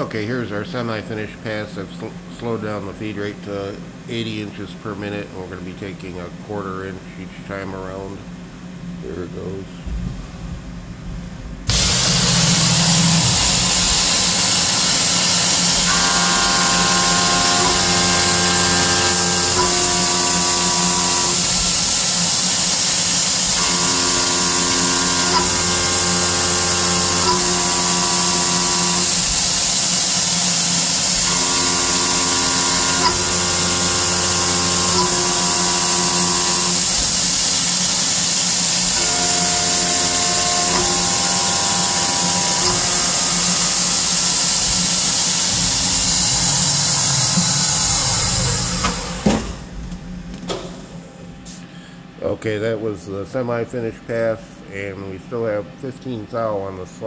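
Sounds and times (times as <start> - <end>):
steady hiss: 0.0 - 55.6
milling machine cutting steel: 11.7 - 49.8.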